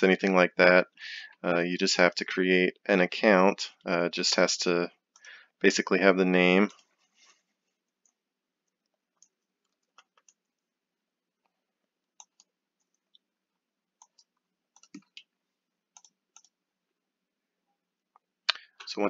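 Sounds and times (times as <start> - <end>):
mouse clicks: 14.0 - 15.3
computer keyboard clicks: 14.8 - 15.2.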